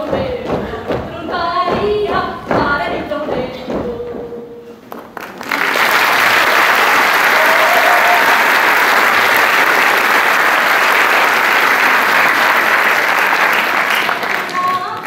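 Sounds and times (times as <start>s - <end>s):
audience applauding: 5.2s - 15.0s.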